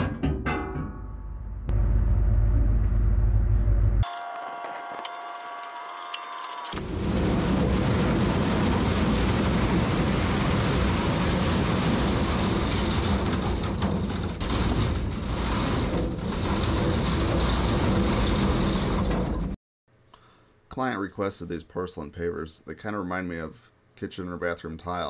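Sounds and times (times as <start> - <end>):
machine rumbling and rattling: 1.5 - 4.0, 6.8 - 19.6.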